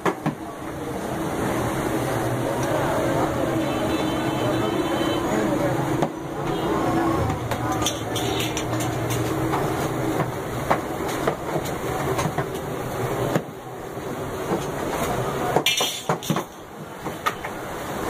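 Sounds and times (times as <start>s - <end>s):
iron rods clicking on oven rim: 7.5s - 10.0s.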